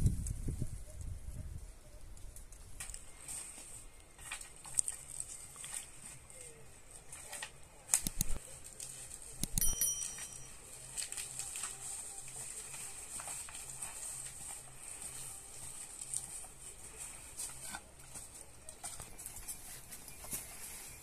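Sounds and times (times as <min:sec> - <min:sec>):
dry sticks cracking and snapping: 0:02.4 - 0:06.4, 0:07.1 - 0:09.7, 0:15.6 - 0:16.5
brushwood rustling and scraping: 0:02.4 - 0:21.0
footsteps on leaf litter: 0:10.1 - 0:21.0.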